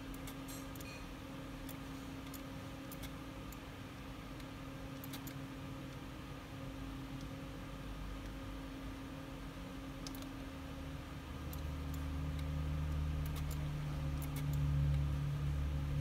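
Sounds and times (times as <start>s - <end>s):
computer mouse clicks: 0.0s - 1.0s, 1.6s - 3.6s, 4.4s - 6.0s, 10.0s - 10.4s, 11.4s - 15.0s
electrical hum: 0.0s - 16.0s.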